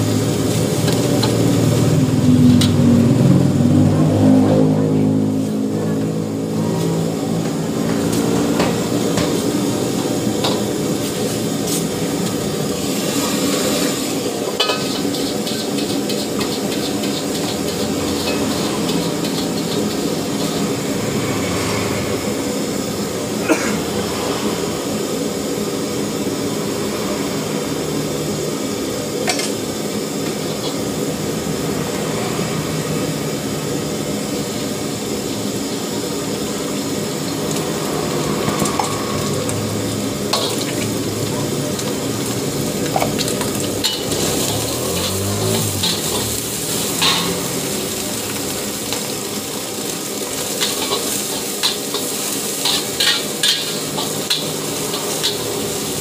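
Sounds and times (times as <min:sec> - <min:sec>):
wok stove running: 0:00.0 - 0:56.0
brush scrubbing a wet wok: 0:43.7 - 0:56.0.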